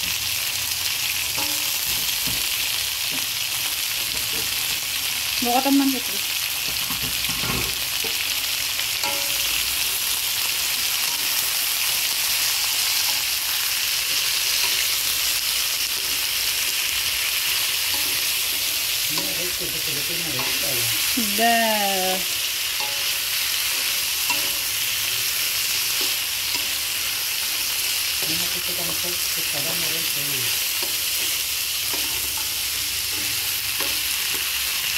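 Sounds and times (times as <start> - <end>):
vegetables sizzling in a wok: 0.0 - 34.9.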